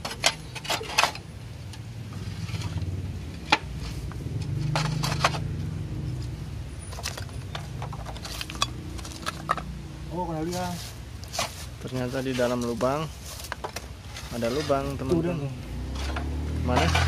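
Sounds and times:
roof tiles clinking and knocking: 0.0s - 1.8s, 3.4s - 5.7s, 6.8s - 9.8s, 10.5s - 17.0s
scraping in debris: 3.4s - 5.6s, 6.9s - 9.6s, 10.5s - 17.0s.

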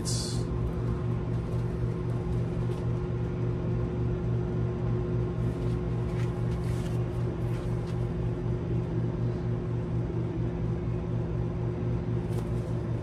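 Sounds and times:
low pulsing machine hum: 0.0s - 13.0s.

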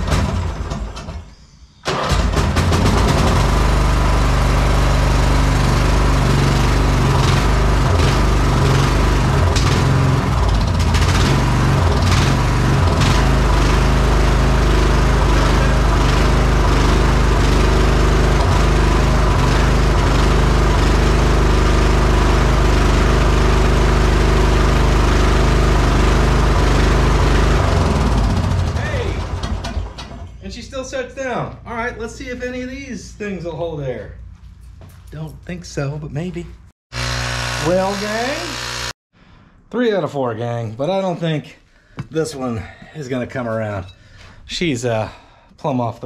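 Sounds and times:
lawn mower engine running: 1.9s - 30.2s, 36.9s - 39.0s.

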